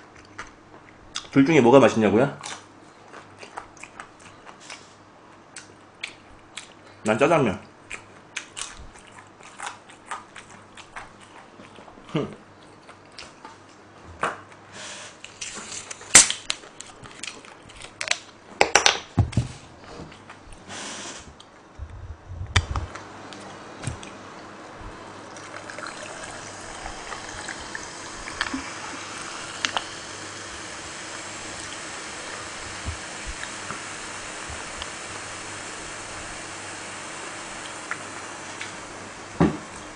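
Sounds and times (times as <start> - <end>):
soda pouring into a cup: 25.1 - 36.4.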